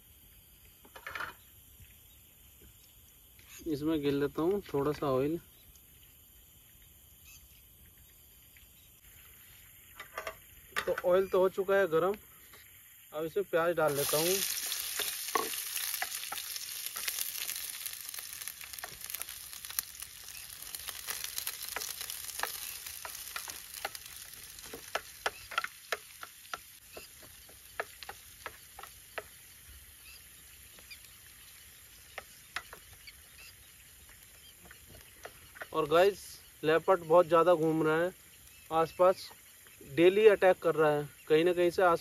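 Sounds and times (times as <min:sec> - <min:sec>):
onion sizzling in hot oil: 0:12.7 - 0:40.8
spatula scraping a pan: 0:13.9 - 0:26.3.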